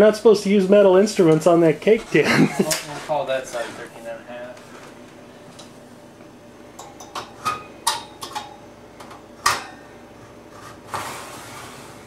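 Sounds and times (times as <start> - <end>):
metal oven rack and pan clanking: 9.4 - 9.8
oven rack scraping: 10.5 - 12.0.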